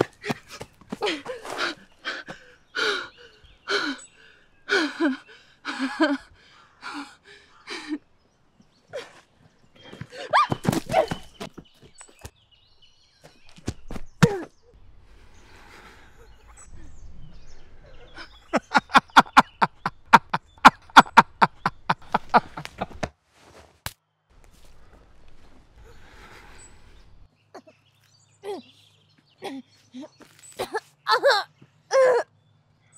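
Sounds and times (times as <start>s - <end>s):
woman sobbing: 1.0s - 4.0s, 4.7s - 8.0s, 29.4s - 32.3s
woman's wavering cry: 10.2s - 11.1s, 31.1s - 32.3s.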